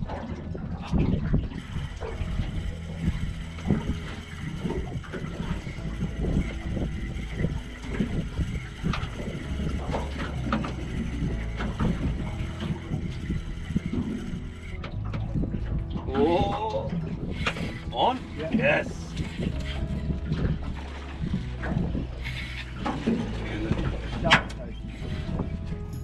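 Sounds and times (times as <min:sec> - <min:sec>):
water lapping against boat hull: 0:00.0 - 0:26.0.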